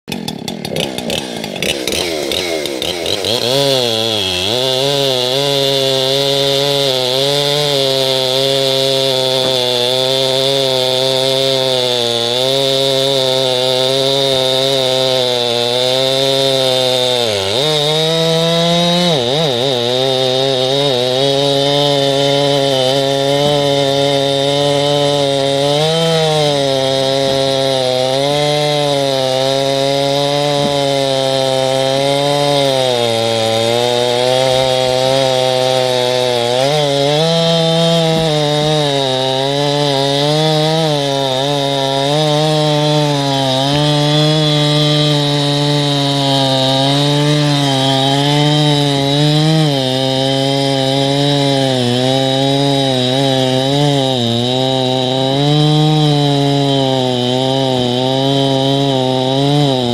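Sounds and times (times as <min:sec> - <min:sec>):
chainsaw cutting log: 0:00.0 - 0:59.9.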